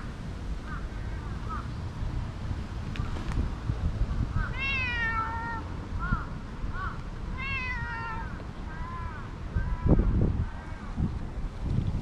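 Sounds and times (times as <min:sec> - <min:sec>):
cat meowing: 0:04.5 - 0:05.6, 0:07.4 - 0:08.4.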